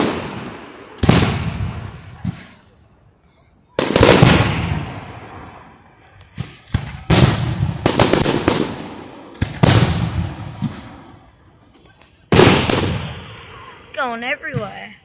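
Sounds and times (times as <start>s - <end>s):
fireworks bangs: 0.0s - 15.0s
small fireworks pops: 0.0s - 15.0s.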